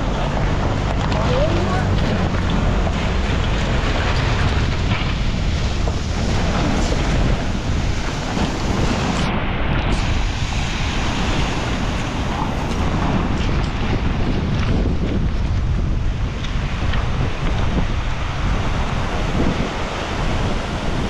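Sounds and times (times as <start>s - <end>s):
strong wind buffeting microphone: 0.0s - 21.0s.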